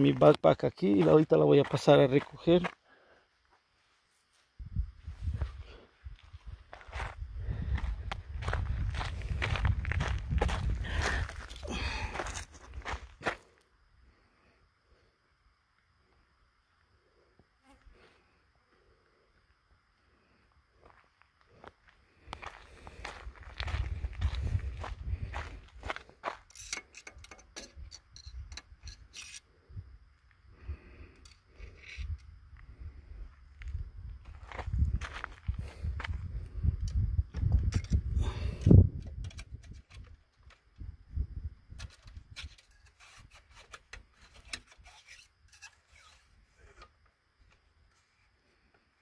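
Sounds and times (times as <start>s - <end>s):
footsteps crunching on gravel: 0.0s - 2.8s, 6.2s - 13.6s, 20.8s - 26.5s, 33.6s - 36.3s.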